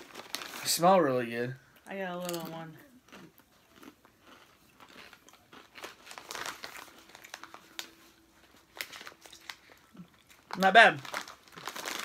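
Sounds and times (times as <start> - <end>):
foil chip bag crinkling: 0.0 - 1.2, 3.7 - 12.0.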